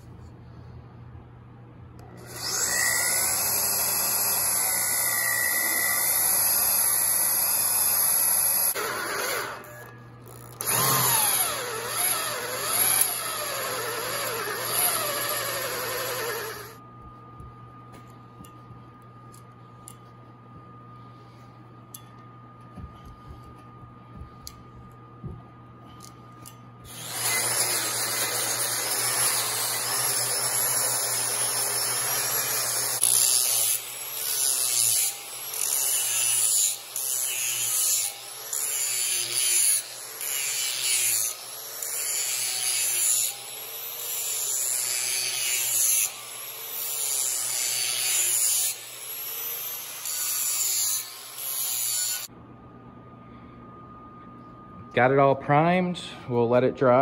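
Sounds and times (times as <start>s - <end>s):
angle grinder grinding steel: 2.2s - 16.8s, 26.9s - 52.3s.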